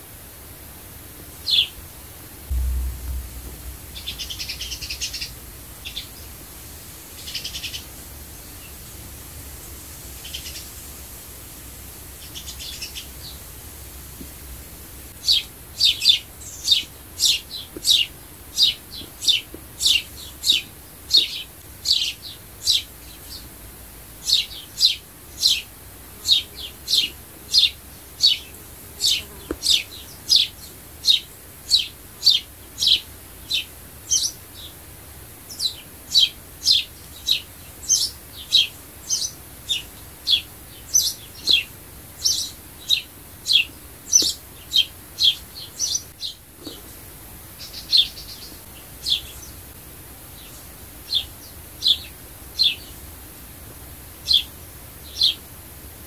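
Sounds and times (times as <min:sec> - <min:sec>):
sparrow chirping: 0:35.5 - 0:46.4.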